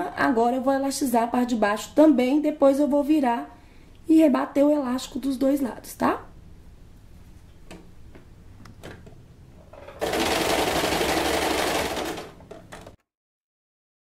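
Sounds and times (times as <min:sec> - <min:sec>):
sewing machine stitching: 0:09.7 - 0:13.0.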